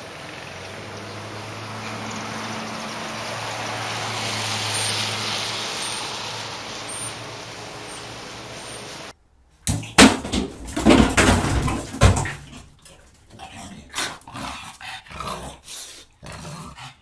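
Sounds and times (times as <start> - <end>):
dog scuffling and knocks: 9.9 - 12.6.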